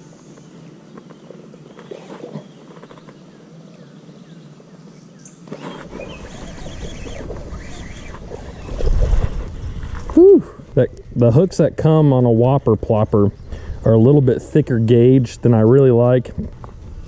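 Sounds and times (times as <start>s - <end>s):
bird chirps: 0.1s - 8.9s
wind rumble on microphone: 5.9s - 17.0s.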